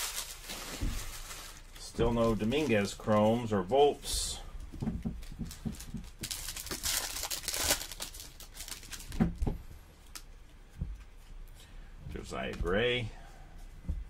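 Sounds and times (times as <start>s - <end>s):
foil wrapper tearing and crinkling: 0.0s - 2.9s, 6.0s - 9.2s.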